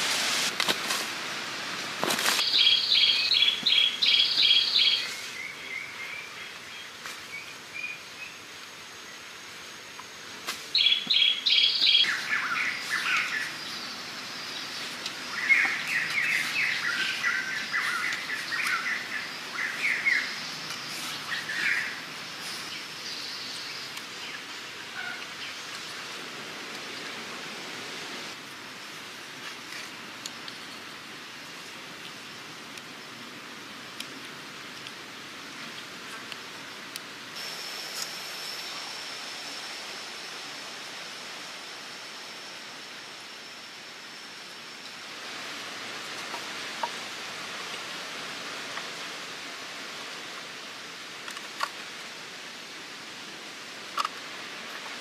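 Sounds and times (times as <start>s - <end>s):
faint outdoor hiss: 0.0s - 55.0s
birds chirping: 2.4s - 8.5s, 10.7s - 26.2s.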